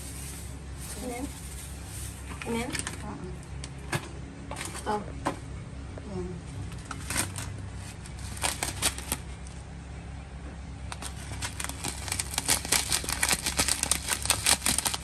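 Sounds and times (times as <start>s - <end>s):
plastic packet crinkling: 0.0s - 2.9s, 8.1s - 9.4s, 10.9s - 15.0s.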